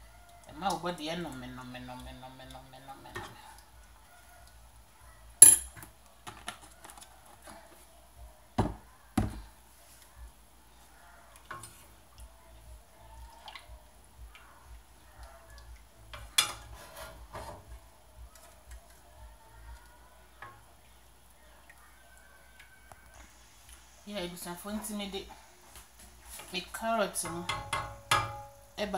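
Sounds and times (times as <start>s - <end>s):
spoon clinking in metal pot: 5.4s - 5.8s, 27.2s - 28.5s
faint scraping: 16.6s - 17.9s.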